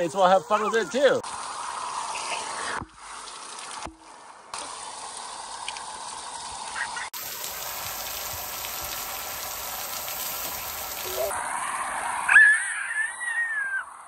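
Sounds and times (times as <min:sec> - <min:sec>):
water spraying from broken pipe: 0:00.8 - 0:11.4
water splashing on wet concrete: 0:06.6 - 0:11.4.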